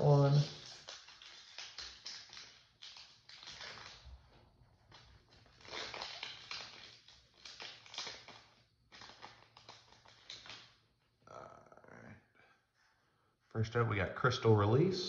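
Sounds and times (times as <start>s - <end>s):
foil wrapper crinkling and tearing: 0.0s - 10.8s.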